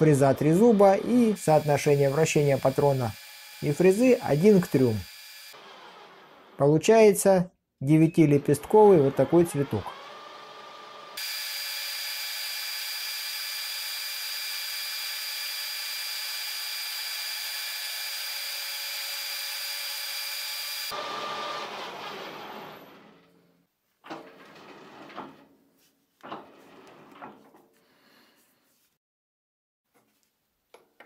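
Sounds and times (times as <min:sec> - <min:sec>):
lathe whining while cutting metal: 0:00.0 - 0:06.6, 0:08.6 - 0:22.8.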